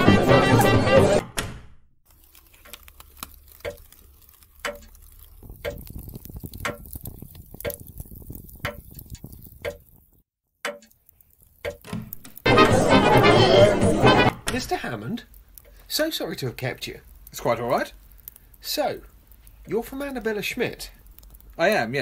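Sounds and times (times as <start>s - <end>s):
faint crackle: 2.0s - 12.5s, 14.5s - 22.0s
clock ticking: 4.6s - 4.9s, 5.6s - 7.0s, 7.6s - 7.9s, 8.6s - 8.8s, 9.6s - 9.9s, 10.6s - 11.0s, 11.6s - 12.3s.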